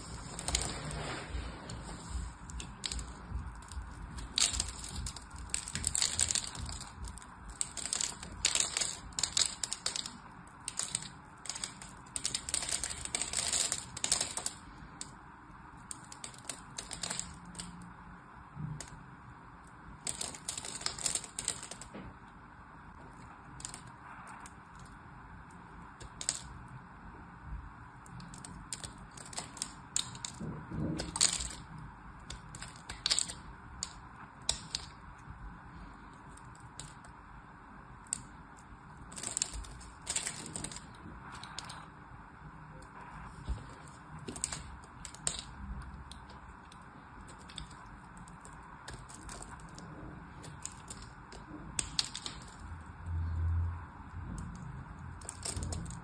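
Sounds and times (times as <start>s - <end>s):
soap cubes snapping and crackling: 2.5s - 15.1s, 15.8s - 17.8s, 20.0s - 21.9s, 26.0s - 26.5s, 28.0s - 35.0s, 39.1s - 41.8s, 43.8s - 52.6s, 55.2s - 56.0s.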